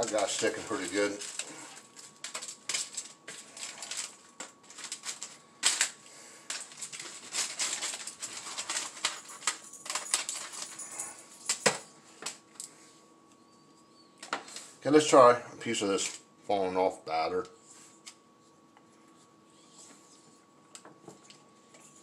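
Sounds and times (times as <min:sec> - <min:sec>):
spatula scraping foil: 0:00.0 - 0:05.8, 0:06.6 - 0:10.3
foil crinkling: 0:00.0 - 0:11.0.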